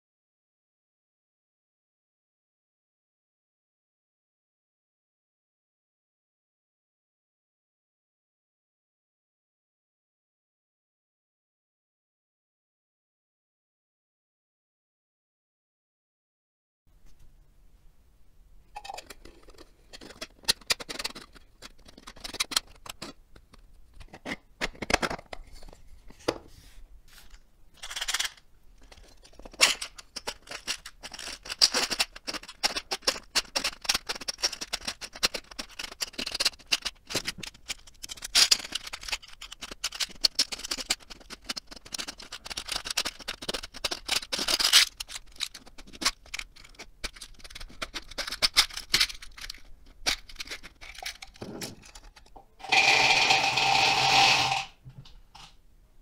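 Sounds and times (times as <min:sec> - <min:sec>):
plastic scraping and clicking: 0:18.8 - 0:26.5, 0:27.3 - 0:52.8.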